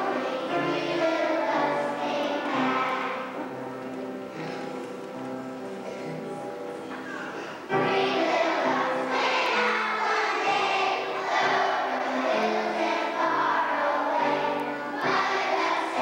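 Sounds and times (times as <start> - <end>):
choir singing: 0.0 - 3.9, 7.7 - 16.0.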